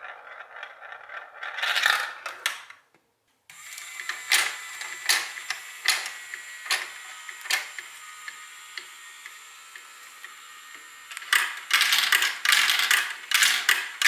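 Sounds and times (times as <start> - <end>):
whirring motor: 3.5 - 14.0.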